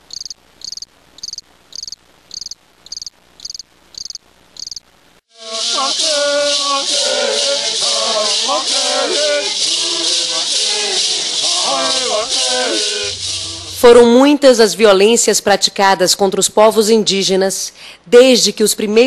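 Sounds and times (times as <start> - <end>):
cricket chirping: 0.0 - 4.9
voices singing with music: 5.3 - 14.1.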